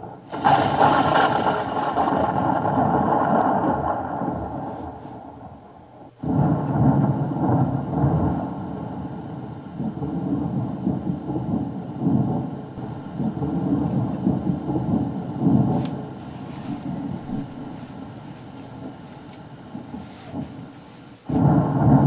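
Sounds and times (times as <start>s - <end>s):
thunder rumble: 0.0s - 22.0s.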